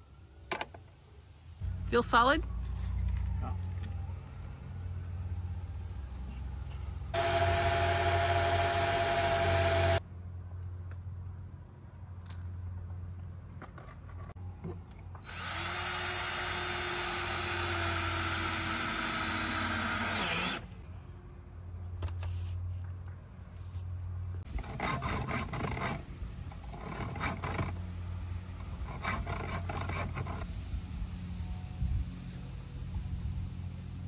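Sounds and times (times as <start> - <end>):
cordless drill motor running: 7.1 - 10.0, 15.2 - 20.8.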